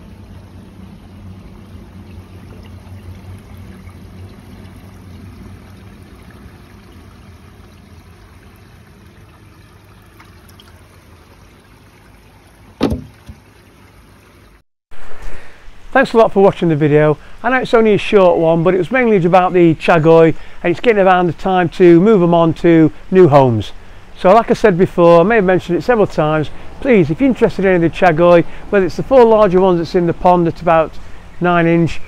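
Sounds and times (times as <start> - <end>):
faint low hum: 0.0 - 14.3
running water: 0.0 - 32.0
thump: 12.8 - 13.4.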